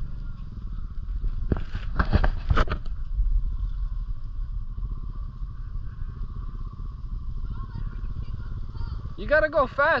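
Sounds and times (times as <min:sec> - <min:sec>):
vehicle engine running: 0:00.0 - 0:10.0.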